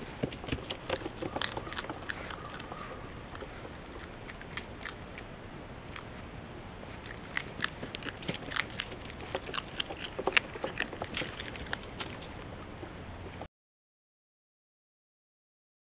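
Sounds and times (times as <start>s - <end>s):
otter claws tapping on wooden planks: 0.0s - 4.1s, 7.5s - 13.5s.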